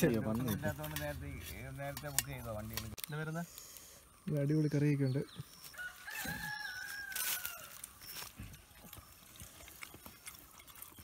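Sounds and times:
rooster crowing: 0:05.7 - 0:07.9.

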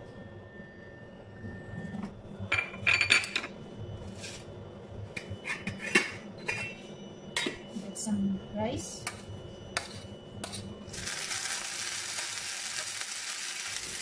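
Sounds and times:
metal pans and utensils clattering: 0:05.4 - 0:06.8.

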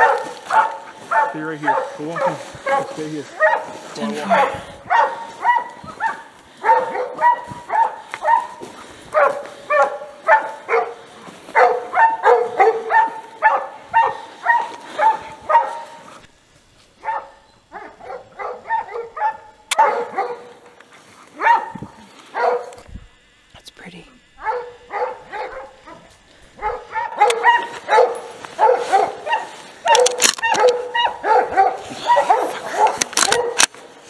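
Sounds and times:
hounds barking: 0:00.0 - 0:22.8, 0:24.3 - 0:34.0
sharp click: 0:29.9 - 0:30.8, 0:33.0 - 0:33.8.

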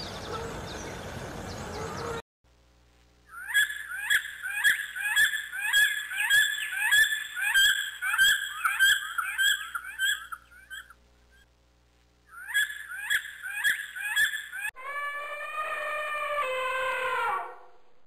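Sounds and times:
bird of prey calling: 0:03.3 - 0:11.0, 0:12.3 - 0:17.4.

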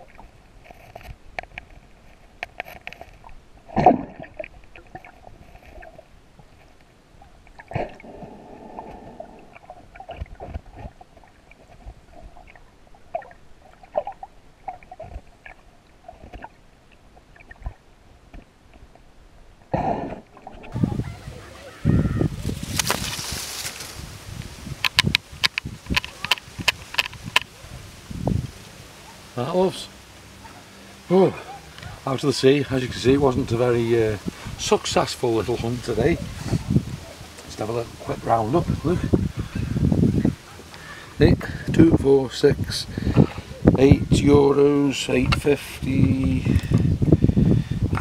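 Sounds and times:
underwater digging through stones: 0:00.0 - 0:19.1, 0:19.7 - 0:20.8, 0:24.6 - 0:27.5
underwater water gushes: 0:02.6 - 0:06.1, 0:07.2 - 0:18.5.

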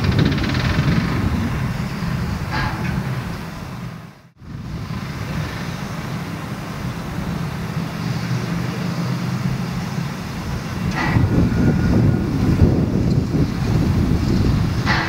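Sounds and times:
steam locomotive low hum: 0:00.0 - 0:15.0.

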